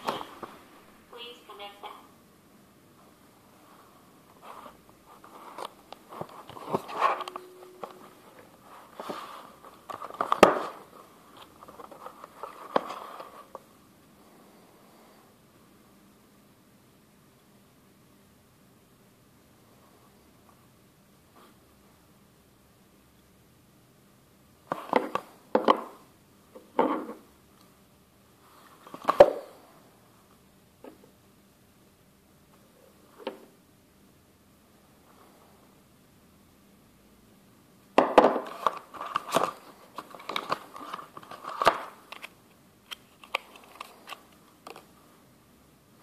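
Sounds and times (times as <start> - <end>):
cardboard and plastic rustling: 4.4 - 13.6, 38.4 - 42.3.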